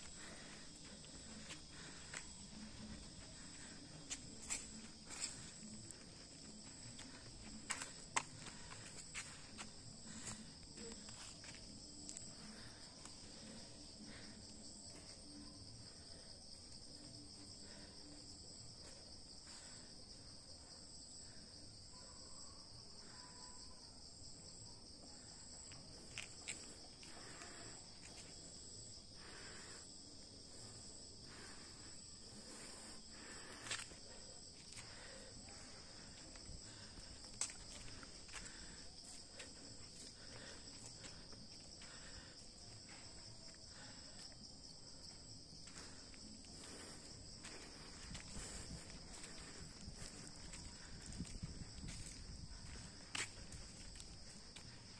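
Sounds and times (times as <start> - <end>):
insects chorus: 0.0 - 54.9.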